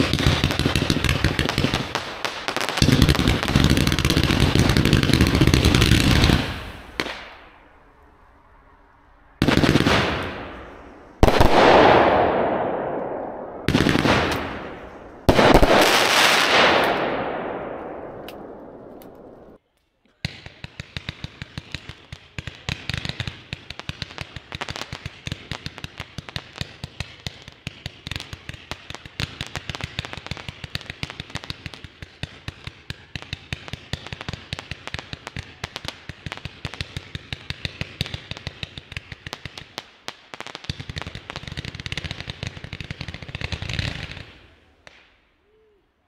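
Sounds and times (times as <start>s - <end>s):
firework cake firing rapid shots: 0.0s - 7.2s, 11.2s - 13.0s, 13.6s - 17.7s, 20.3s - 39.8s.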